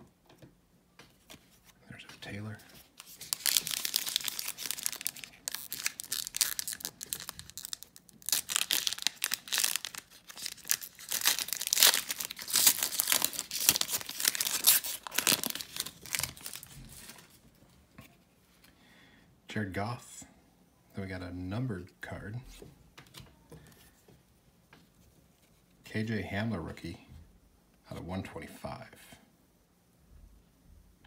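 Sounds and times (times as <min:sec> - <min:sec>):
foil wrapper crinkling and tearing: 0:02.9 - 0:17.4.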